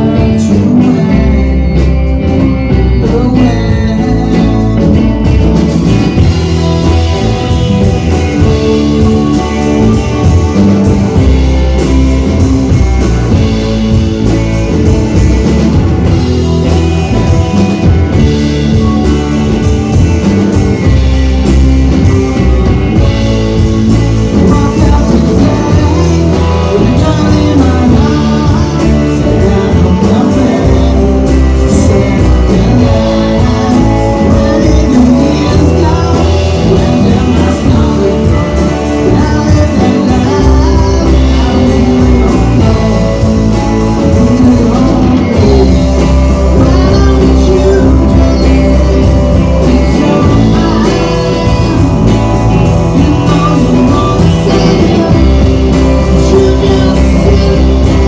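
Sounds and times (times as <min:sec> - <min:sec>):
man singing into microphone: 0:00.0 - 0:06.4, 0:24.2 - 0:58.0
drums: 0:00.0 - 0:58.0
electric guitars: 0:00.0 - 0:58.0.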